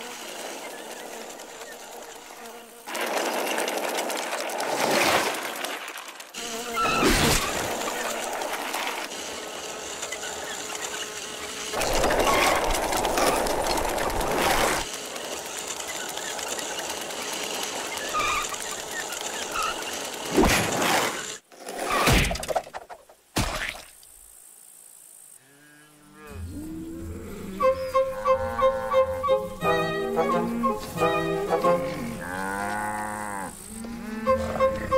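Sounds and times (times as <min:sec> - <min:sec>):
orchestral music with pulsing beat: 0:29.0 - 0:31.9.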